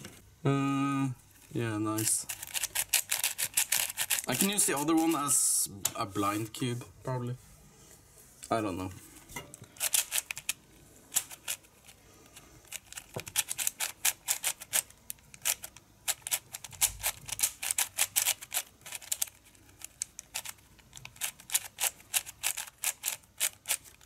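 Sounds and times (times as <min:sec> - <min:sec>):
plastic puzzle cube clicking: 0:02.3 - 0:04.8, 0:12.7 - 0:24.0.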